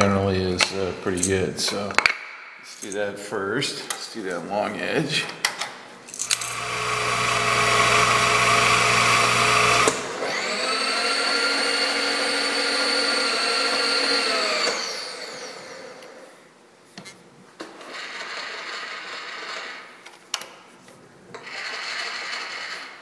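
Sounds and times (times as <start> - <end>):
machine humming: 6.2 - 16.1
milling machine spindle whine: 6.3 - 16.0.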